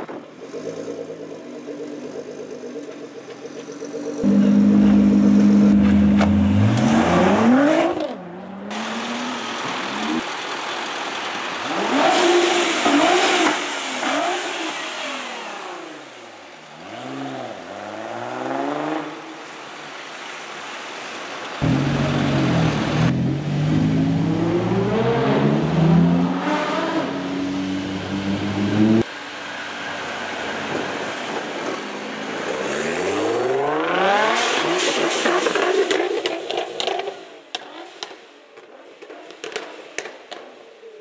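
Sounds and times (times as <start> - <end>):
car engine revving hard: 4.2 - 8.0, 21.6 - 29.0, 32.7 - 34.8.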